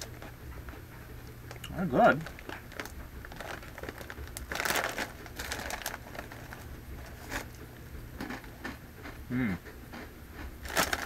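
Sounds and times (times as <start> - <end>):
chip bag crinkling: 1.4 - 9.2, 10.4 - 11.0.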